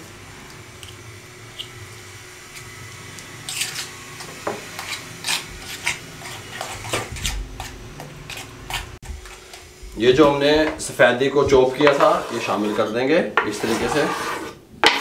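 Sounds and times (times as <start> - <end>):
metal spoon scraping a bowl: 3.5 - 3.9, 4.7 - 8.9, 11.8 - 14.6.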